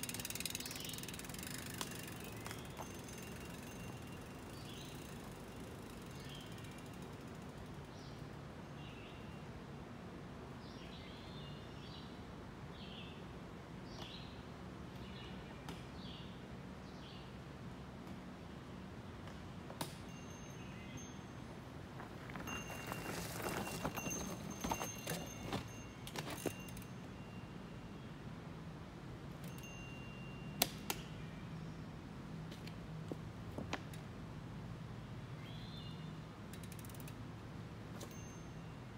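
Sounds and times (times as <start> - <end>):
bike tyres knocking against rocks: 0.0 - 3.6, 22.0 - 26.8.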